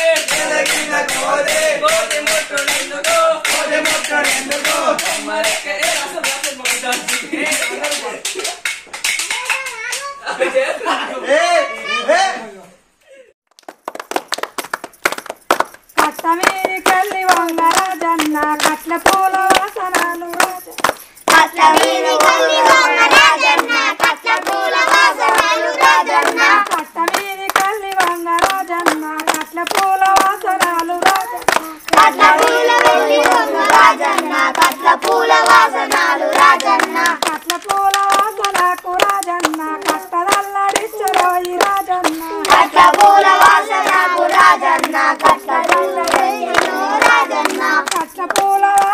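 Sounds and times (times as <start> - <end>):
hands clapping in rhythm: 0.0 - 10.1, 13.5 - 48.9
children and woman singing: 16.0 - 48.9.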